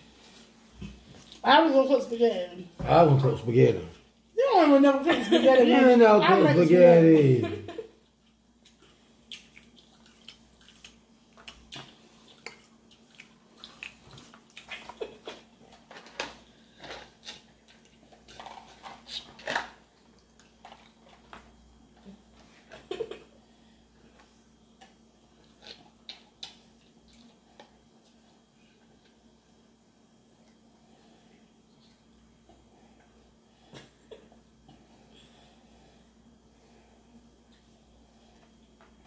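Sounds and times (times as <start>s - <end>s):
chewing and swallowing: 8.1s - 22.3s.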